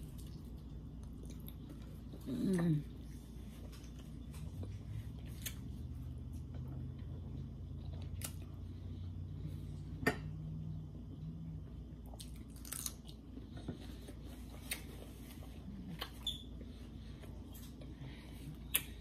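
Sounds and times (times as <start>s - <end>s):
person chewing: 0.0s - 6.5s, 12.0s - 16.2s
low hum: 0.0s - 19.0s.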